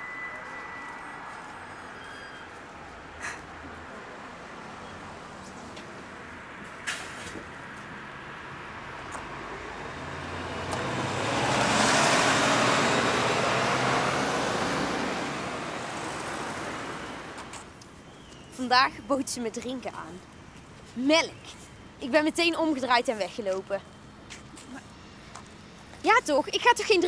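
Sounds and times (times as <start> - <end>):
bus driving past: 0.0 - 20.6.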